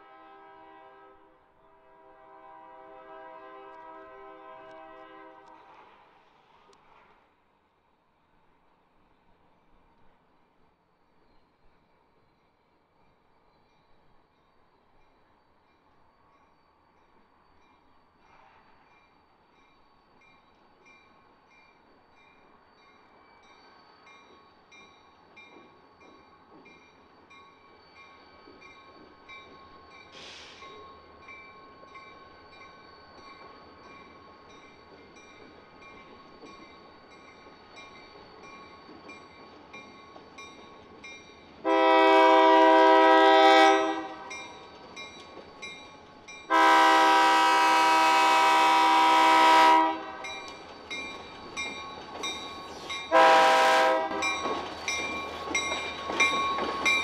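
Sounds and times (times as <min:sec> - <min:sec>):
locomotive air horn blasts: 0:00.0 - 0:05.7, 0:41.6 - 0:44.3, 0:46.5 - 0:50.3, 0:53.1 - 0:54.3.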